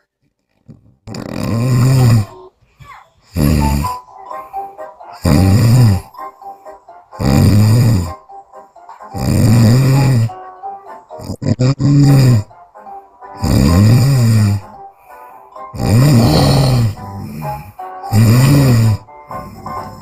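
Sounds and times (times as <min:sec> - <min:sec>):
woman snoring loudly: 0:01.1 - 0:02.4, 0:03.3 - 0:04.0, 0:05.2 - 0:06.2, 0:07.2 - 0:08.2, 0:09.1 - 0:10.4, 0:11.1 - 0:12.5, 0:13.4 - 0:14.8, 0:15.7 - 0:20.0.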